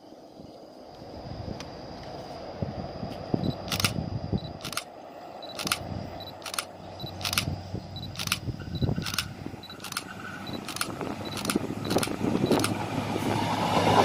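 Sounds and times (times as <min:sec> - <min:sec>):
distant train hum: 0:00.0 - 0:14.0
wind rumble: 0:00.0 - 0:14.0
sharp clicks: 0:03.5 - 0:12.8.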